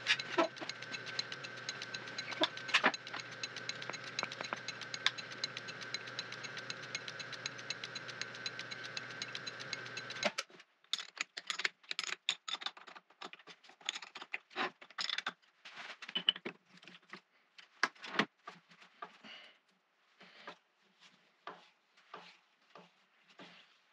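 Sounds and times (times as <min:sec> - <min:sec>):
lathe running with clicking belt: 0:00.0 - 0:10.4.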